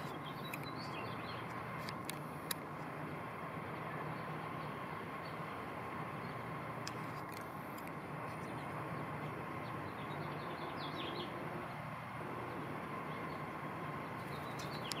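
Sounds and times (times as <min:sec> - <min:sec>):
bird chirps: 0:00.0 - 0:01.6, 0:08.3 - 0:11.4, 0:12.5 - 0:15.0
background hum and hiss: 0:00.0 - 0:15.0.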